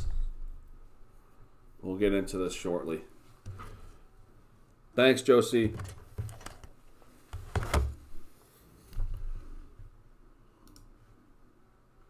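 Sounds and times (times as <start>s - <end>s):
faint clicks: 10.6s - 10.9s.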